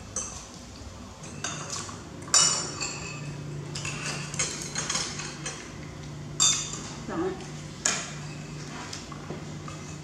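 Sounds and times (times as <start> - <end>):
spoon clinking on a plate: 1.2 - 5.6.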